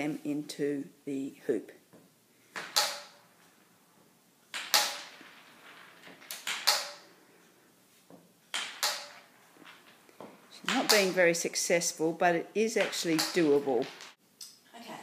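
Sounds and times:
stick striking marbles: 2.5s - 3.6s, 4.4s - 7.5s, 8.1s - 11.6s, 12.6s - 14.2s
marbles clacking on wooden floor: 2.6s - 3.5s, 4.4s - 11.9s, 12.6s - 14.2s.

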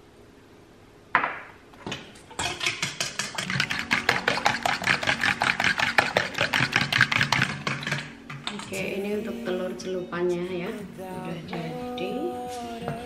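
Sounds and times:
fork beating eggs in metal bowl: 2.2s - 9.1s.

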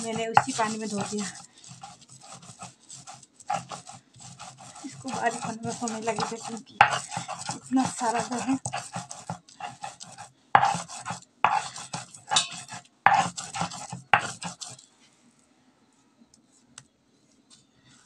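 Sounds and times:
stone grinding scraping: 0.0s - 14.9s.

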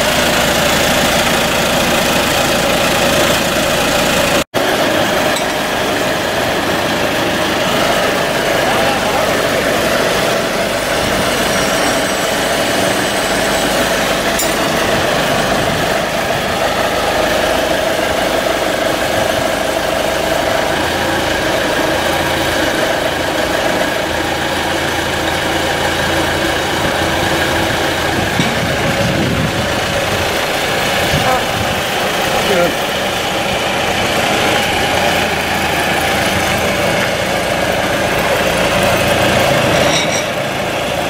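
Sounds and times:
engine running steadily: 0.0s - 41.0s.

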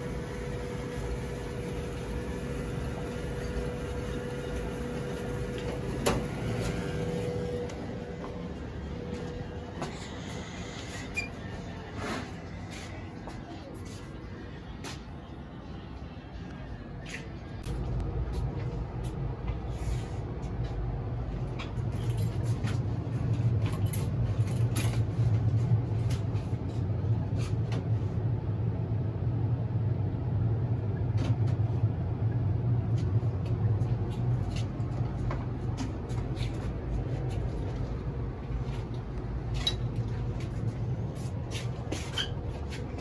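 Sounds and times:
gas furnace humming: 0.0s - 43.0s.

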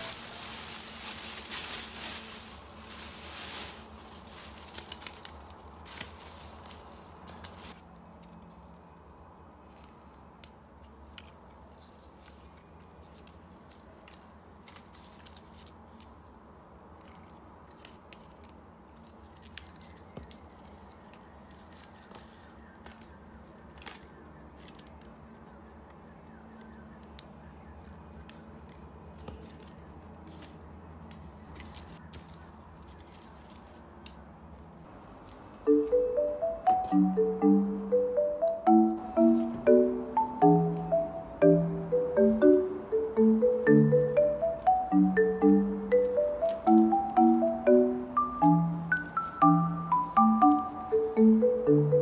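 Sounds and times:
plastic bag rustling: 0.0s - 7.8s.

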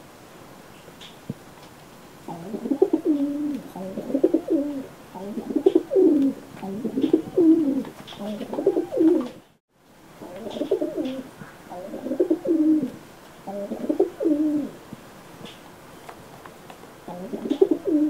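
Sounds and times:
pigeons cooing: 2.2s - 9.5s, 10.2s - 14.8s, 17.0s - 18.0s.

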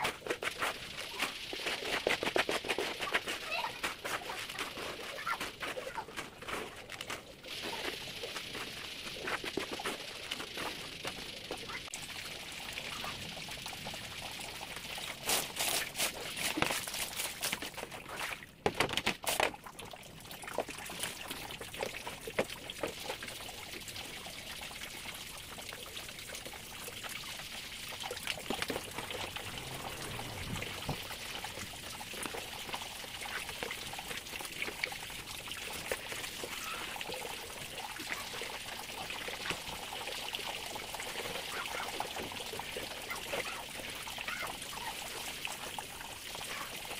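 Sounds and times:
sponge scrubbing with splashing: 0.0s - 11.9s, 15.0s - 18.5s, 41.1s - 45.9s
water pouring and trickling: 0.0s - 46.9s.

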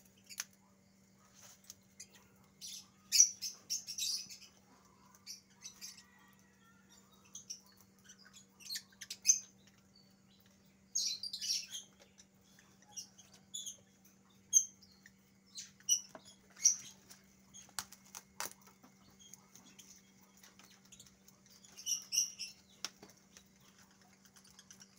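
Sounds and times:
high bird chirps: 6.9s - 17.0s.

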